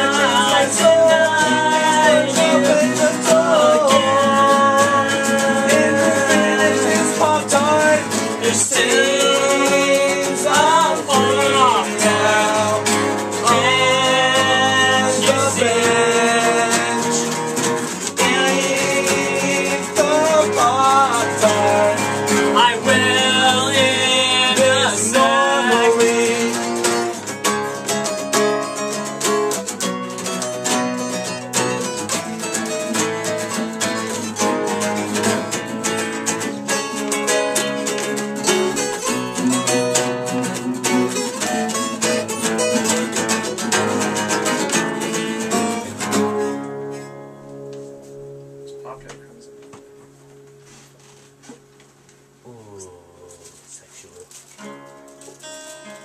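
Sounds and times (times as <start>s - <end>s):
person singing: 0.0s - 27.2s, 52.4s - 54.3s
acoustic guitars strumming: 0.0s - 56.0s.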